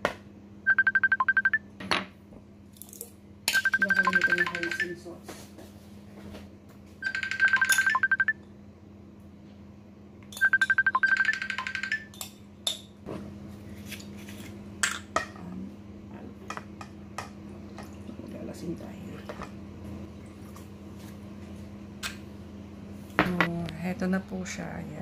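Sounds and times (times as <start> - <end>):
phone ringtone pulsing: 0.7 - 1.6, 3.5 - 5.0, 7.0 - 8.4, 10.4 - 12.1.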